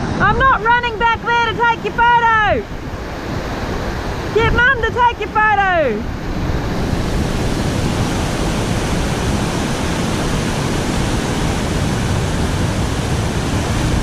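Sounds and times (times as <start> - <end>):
river water rushing over rapids: 0.0 - 14.0.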